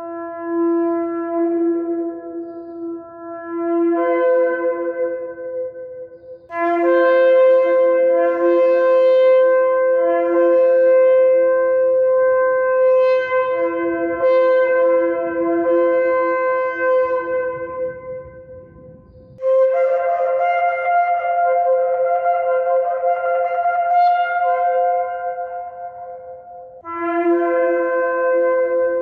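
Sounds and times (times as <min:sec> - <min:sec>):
shofar blasts: 0:06.5 - 0:29.0.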